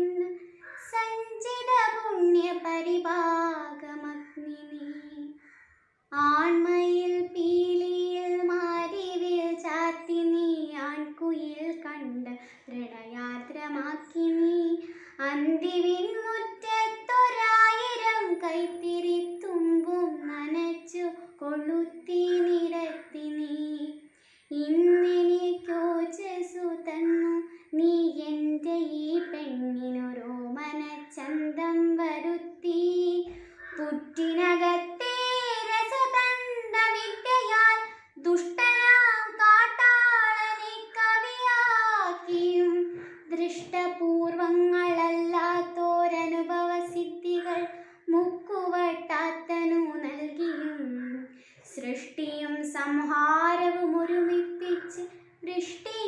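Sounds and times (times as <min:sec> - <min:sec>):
girl singing unaccompanied: 0:00.0 - 0:05.5, 0:06.1 - 0:56.0.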